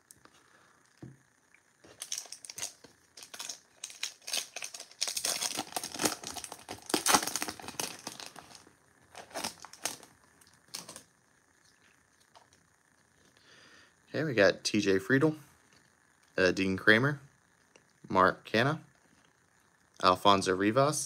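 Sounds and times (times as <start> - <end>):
plastic wrapper tearing and crinkling: 1.9 - 11.0.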